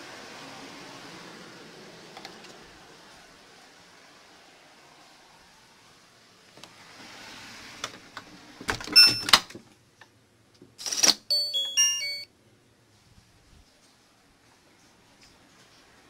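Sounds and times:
electronic beeps at changing pitches: 0:11.3 - 0:12.3.

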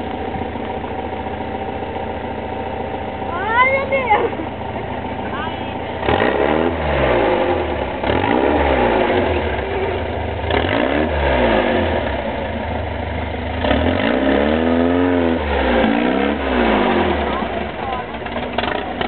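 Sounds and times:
buggy engine revving: 0:00.0 - 0:19.0.

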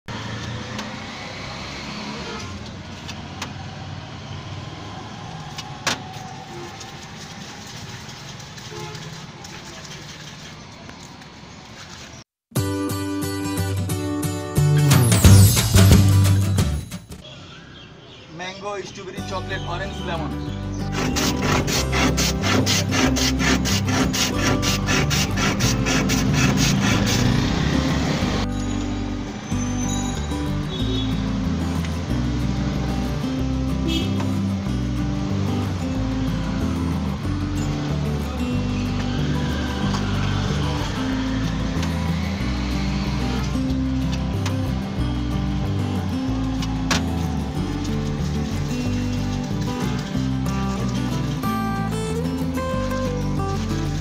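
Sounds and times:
street traffic: 0:00.0 - 0:54.0
ice rasping over shaver blade: 0:20.8 - 0:27.5.

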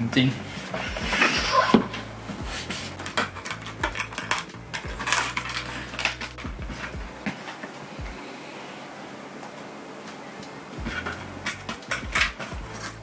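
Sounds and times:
cardboard scraping and clicking: 0:00.6 - 0:07.7
knife slitting packing tape: 0:02.6 - 0:06.5, 0:11.0 - 0:13.0.

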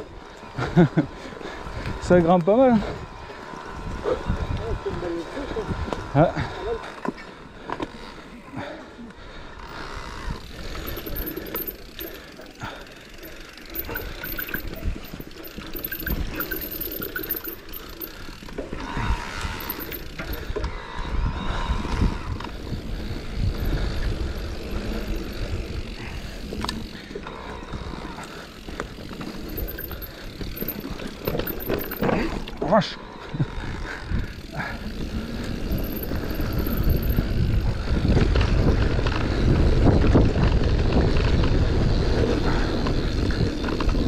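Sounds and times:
bike tyres rolling on dirt: 0:00.0 - 0:44.0
bike knocking and rattling: 0:09.6 - 0:21.0, 0:22.2 - 0:44.0.

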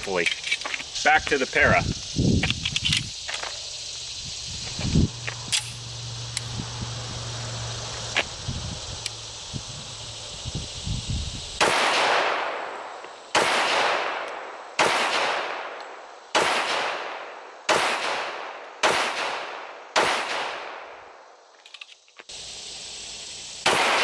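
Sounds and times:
pistol shots with echo: 0:11.6 - 0:12.7, 0:13.3 - 0:21.0, 0:23.6 - 0:24.0.

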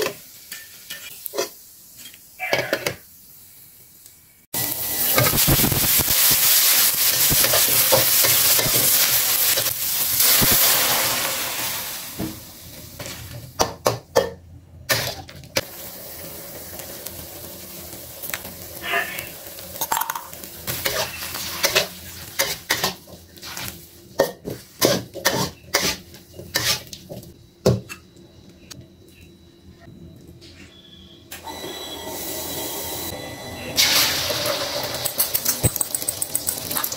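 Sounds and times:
metal spatula scraping a wok: 0:00.0 - 0:02.9, 0:20.6 - 0:27.0
vegetables sizzling in a wok: 0:00.0 - 0:13.8, 0:14.9 - 0:27.4, 0:31.5 - 0:36.9.

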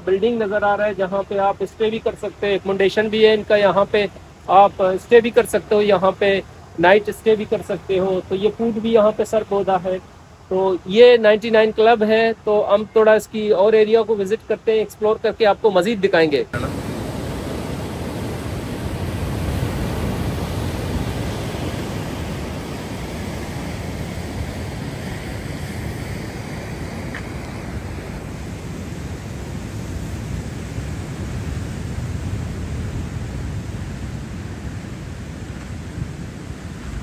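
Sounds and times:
surf breaking on shore: 0:16.5 - 0:37.0
wind buffeting microphone: 0:16.6 - 0:37.0.

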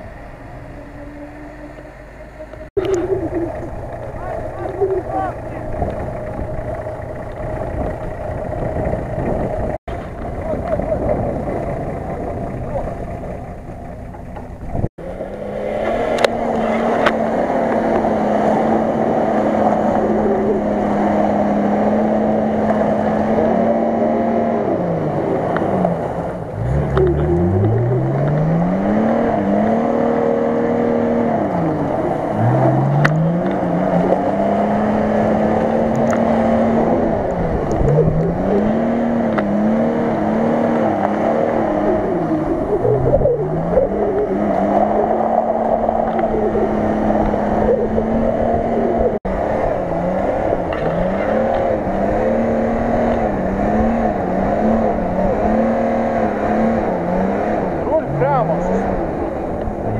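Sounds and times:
engine revving hard: 0:15.0 - 0:59.9.

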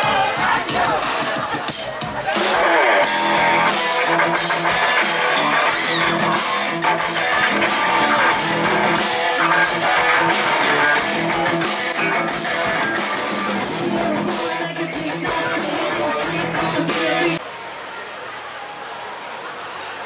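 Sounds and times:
drum kit beat: 0:00.0 - 0:17.4
electric guitars: 0:01.4 - 0:17.4.

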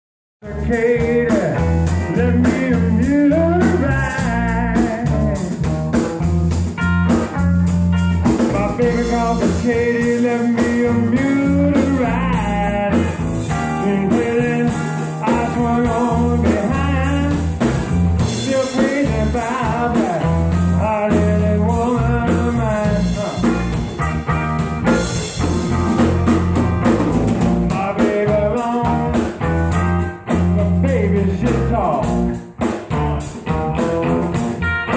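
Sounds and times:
man singing into a microphone: 0:00.4 - 0:05.6, 0:08.4 - 0:17.6, 0:18.2 - 0:23.7, 0:27.7 - 0:29.4, 0:30.4 - 0:32.2
drum kit: 0:00.4 - 0:34.9
electric bass: 0:00.4 - 0:34.9
electric guitar: 0:00.4 - 0:34.9.

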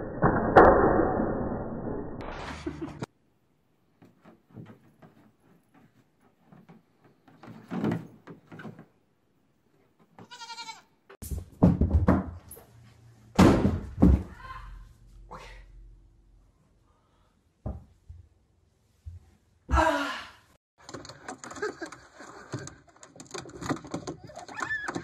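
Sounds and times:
goat bleat: 0:10.2 - 0:10.9
goat hooves tapping on plastic: 0:20.8 - 0:25.0.

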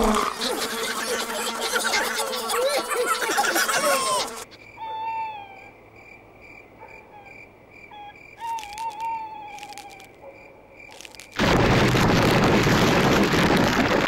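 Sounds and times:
owl hooting: 0:00.3 - 0:05.8, 0:07.0 - 0:10.1
crickets chirping: 0:04.5 - 0:11.4.

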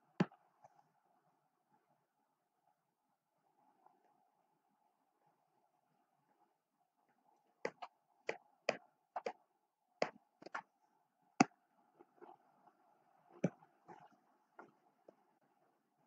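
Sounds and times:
faint steady hum: 0:00.0 - 0:16.0
stylus tapping on tablet screen: 0:07.6 - 0:09.4, 0:10.0 - 0:10.7.

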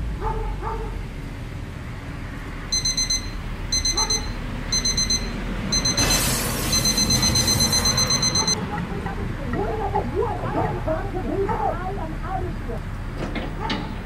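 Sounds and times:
digital alarm clock beeping: 0:02.7 - 0:08.6.

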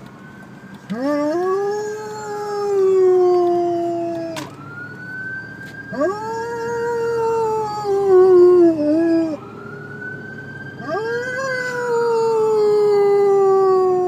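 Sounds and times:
dog howling: 0:00.9 - 0:04.5, 0:05.9 - 0:09.4, 0:10.8 - 0:14.0.

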